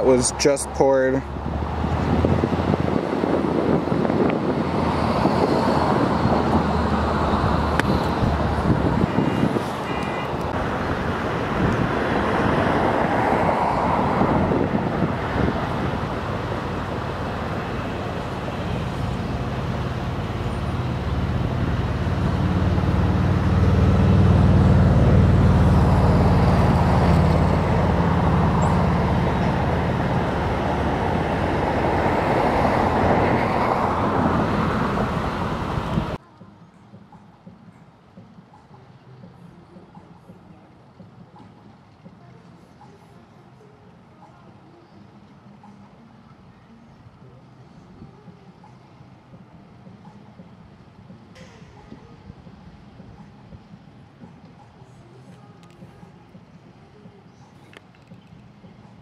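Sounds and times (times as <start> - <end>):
deep engine hum: 0.0 - 36.2
road traffic passing: 0.0 - 59.0.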